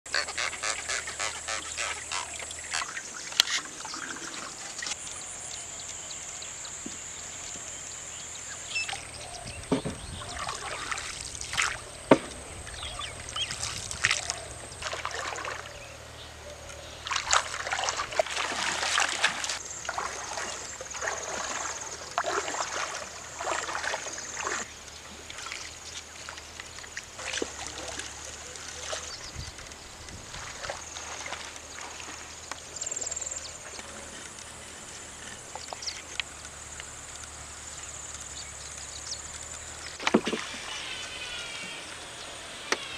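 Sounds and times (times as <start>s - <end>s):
bird calls: 0.1s - 22.8s
water splashing and dripping: 8.8s - 16.1s, 16.7s - 33.8s.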